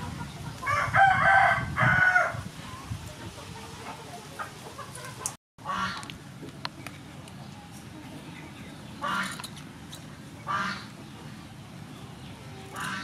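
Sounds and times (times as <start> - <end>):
rooster crowing: 0.6 - 2.4.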